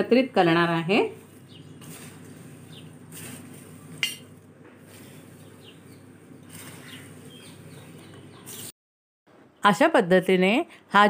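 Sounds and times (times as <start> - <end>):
dry flakes rustling: 0.5 - 8.7
spoon scraping steel plate: 3.1 - 4.3
spoon clinking against plate: 4.0 - 4.3.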